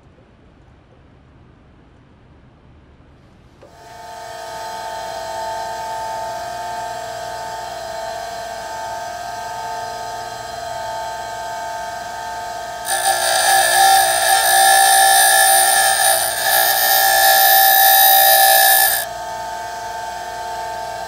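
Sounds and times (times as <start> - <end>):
bench grinder whine: 3.7 - 21.0
drill bit grinding hiss: 12.8 - 19.1.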